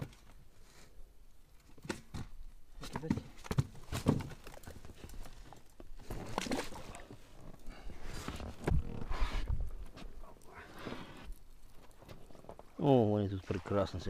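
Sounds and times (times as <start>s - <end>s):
knocks and rustling: 1.8s - 5.3s
water splashing: 10.3s - 14.0s.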